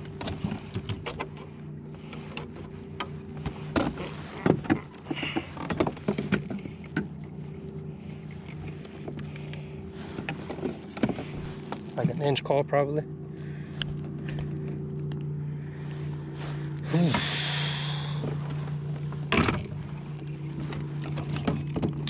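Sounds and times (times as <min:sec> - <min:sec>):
electric trolling motor whine: 0:00.0 - 0:22.0
knocks and rattles on kayak hull: 0:03.0 - 0:07.1, 0:20.7 - 0:22.0.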